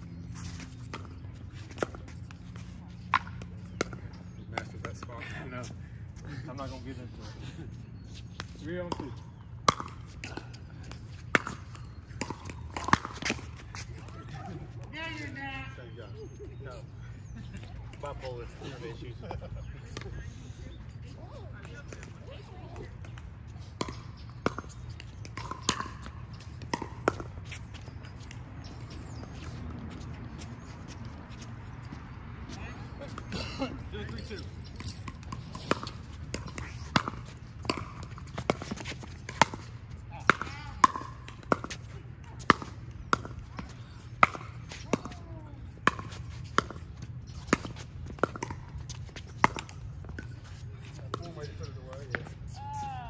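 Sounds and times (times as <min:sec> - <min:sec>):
paddles hitting plastic ball: 0:09.6 - 0:14.1, 0:34.7 - 0:45.2, 0:45.8 - 0:50.3.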